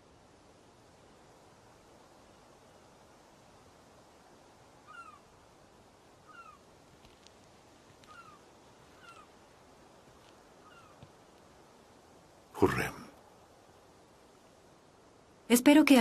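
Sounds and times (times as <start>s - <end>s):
quiet hiss: 0.0s - 16.0s
faint short animal calls: 4.8s - 5.3s, 6.2s - 6.7s, 8.0s - 9.4s, 10.6s - 11.2s.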